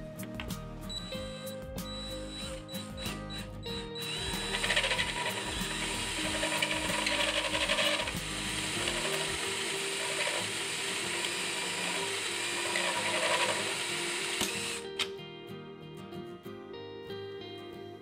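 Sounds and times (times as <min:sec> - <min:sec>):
cordless drill boring through metal: 0:01.0 - 0:14.9.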